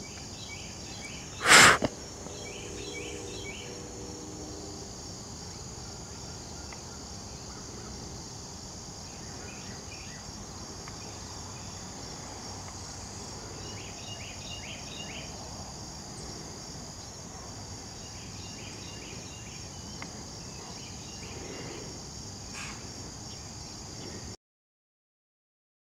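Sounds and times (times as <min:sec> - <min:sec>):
background hiss: 0:00.0 - 0:24.4
insect drone: 0:00.0 - 0:24.4
short insect chirps: 0:00.1 - 0:03.9.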